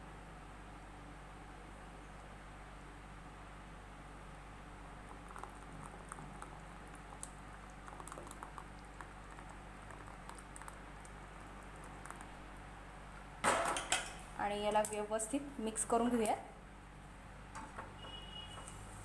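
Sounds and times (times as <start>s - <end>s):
syrup pouring with ticks and pops: 4.9s - 13.3s.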